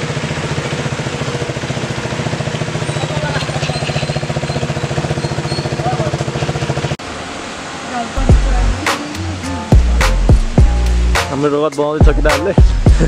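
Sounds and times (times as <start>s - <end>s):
motorcycle engine idling: 0.0s - 7.0s.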